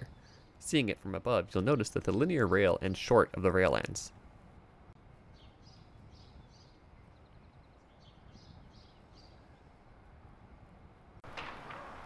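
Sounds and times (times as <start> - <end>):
faint outdoor background noise: 0.0 - 12.0
small bird chirping: 5.3 - 9.8.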